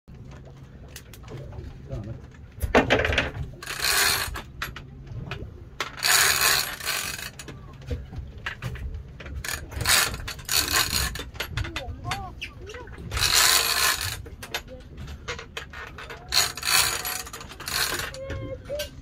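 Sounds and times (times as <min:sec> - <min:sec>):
fishing reel cranked buzzing: 0:03.6 - 0:04.5, 0:06.0 - 0:07.4, 0:09.4 - 0:11.4, 0:13.1 - 0:14.2, 0:16.2 - 0:18.2.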